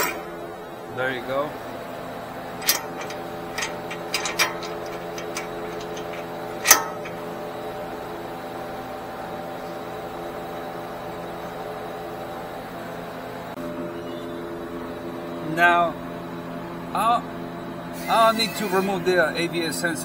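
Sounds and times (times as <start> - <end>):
metal tools clinking: 0.0 - 0.3, 2.6 - 7.4
steady machine hum: 0.0 - 10.9.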